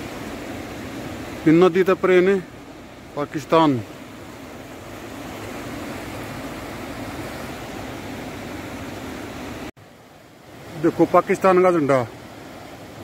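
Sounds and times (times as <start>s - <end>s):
river rushing: 0.0s - 13.0s.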